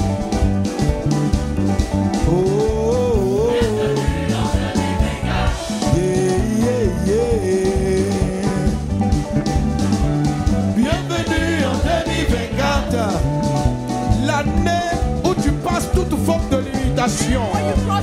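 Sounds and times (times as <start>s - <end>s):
drums and bass beat: 0.0s - 18.0s
gospel band music: 0.0s - 18.0s.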